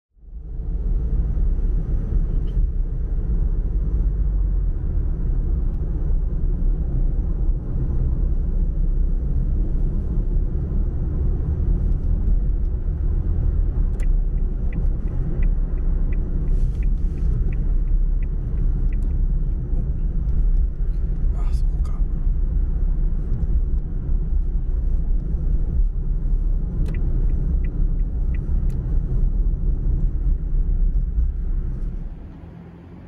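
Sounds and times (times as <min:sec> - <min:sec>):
car interior road and engine rumble: 0:00.2 - 0:33.0
light evenly spaced ticks: 0:13.9 - 0:19.6, 0:26.8 - 0:29.0.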